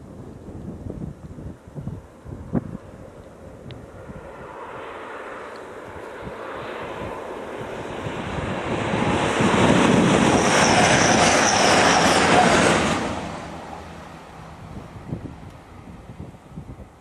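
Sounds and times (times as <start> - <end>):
train passing at speed: 3.9 - 16.8.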